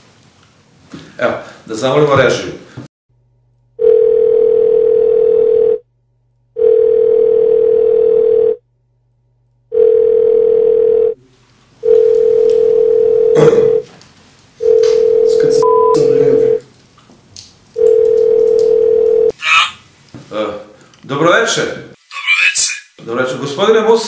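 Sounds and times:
telephone ringback tone: 3.8 - 5.8, 6.6 - 8.6, 9.7 - 11.2, 11.8 - 13.8, 14.6 - 16.6, 17.8 - 19.3.

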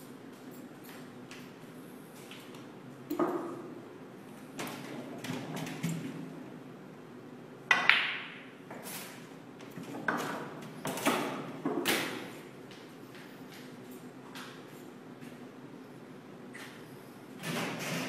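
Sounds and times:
snooker balls knocking: 7.7 - 8.5.

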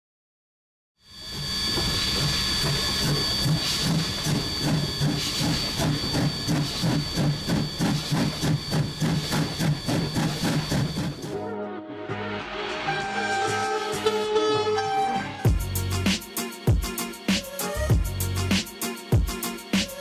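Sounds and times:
steam locomotive exhaust chuffs: 1.2 - 11.3.

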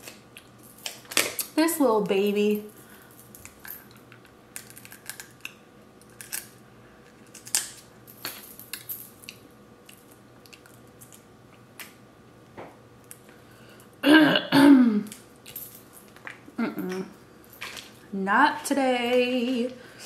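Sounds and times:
crab shell cracking: 4.6 - 7.9.

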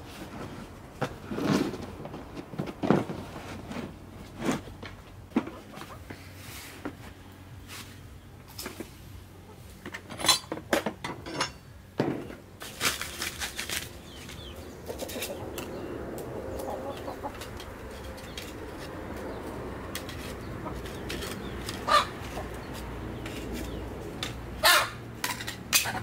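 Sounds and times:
chickens clucking: 5.3 - 6.4, 13.4 - 25.0.

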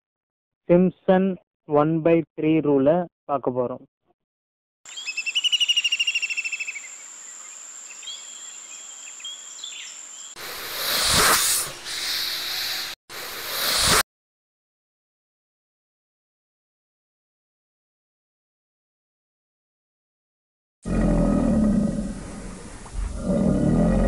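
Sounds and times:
rapid bird-like chirping trill: 4.9 - 11.1.

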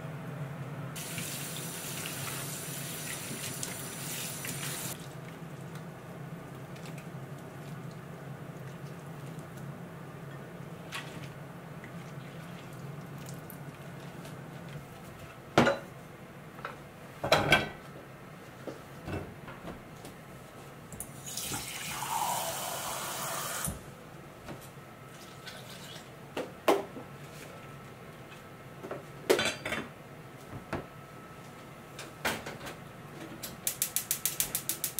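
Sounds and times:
water running from tap: 1.0 - 5.0, 21.2 - 23.8.

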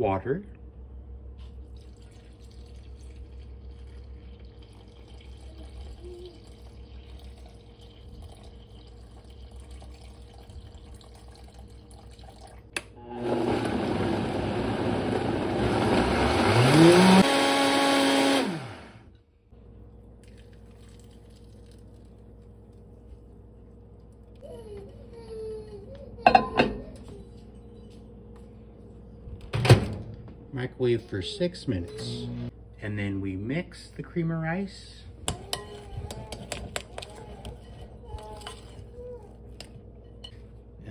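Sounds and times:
blender motor running: 13.0 - 19.1, 31.9 - 32.5.

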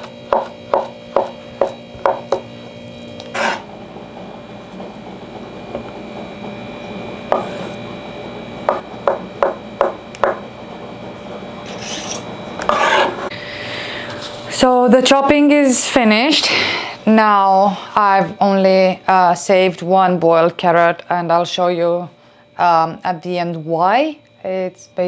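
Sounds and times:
knife chopping on wooden board: 0.0 - 2.4.

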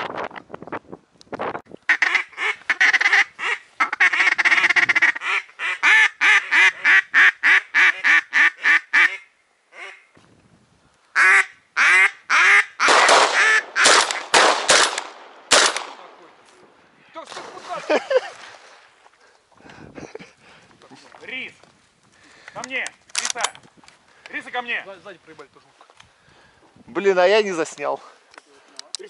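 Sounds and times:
duck quacking: 1.9 - 10.1, 11.2 - 12.8.

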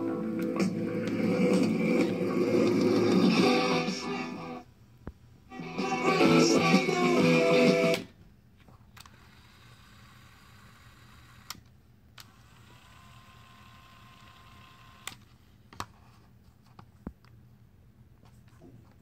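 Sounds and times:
faint mechanical whir: 8.0 - 19.0.

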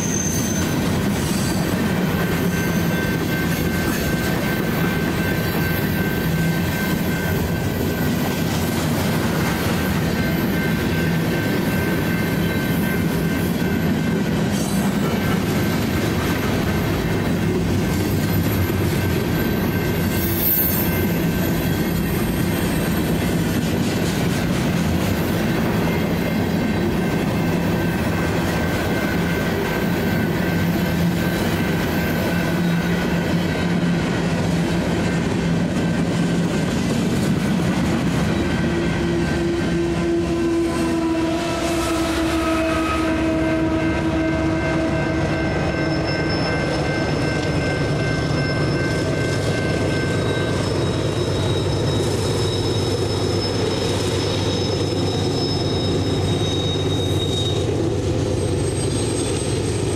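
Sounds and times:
high squeal: 0.0 - 15.6, 18.1 - 23.6, 25.2 - 34.3, 38.3 - 59.9
train wheels rumbling on rails: 0.0 - 59.9
electronic crossing bell ringing: 44.6 - 53.7.

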